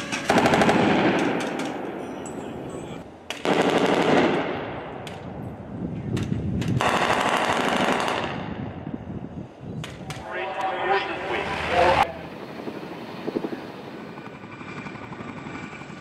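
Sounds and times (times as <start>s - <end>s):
machine gun automatic fire: 0.3s - 1.5s, 3.4s - 4.3s.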